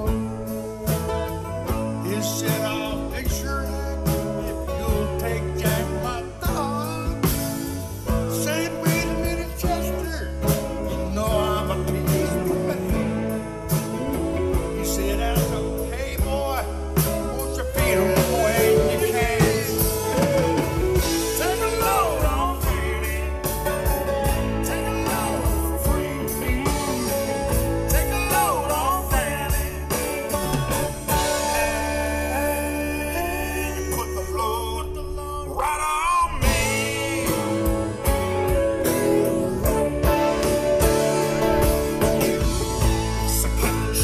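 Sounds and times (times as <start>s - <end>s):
drum kit: 0.0s - 34.5s, 36.0s - 44.0s
pitch-bending melody line: 0.0s - 35.5s, 36.4s - 44.0s
electric bass: 0.0s - 44.0s
electric guitars: 0.0s - 44.0s.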